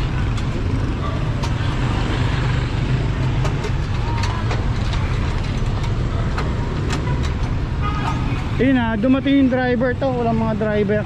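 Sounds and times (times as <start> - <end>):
traffic engine rumble: 0.0 - 11.0
small clicks and knocks: 3.2 - 7.6.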